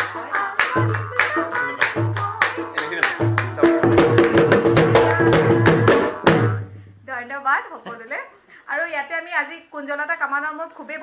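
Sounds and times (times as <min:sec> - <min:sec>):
barrel drum beat: 0:00.0 - 0:06.8.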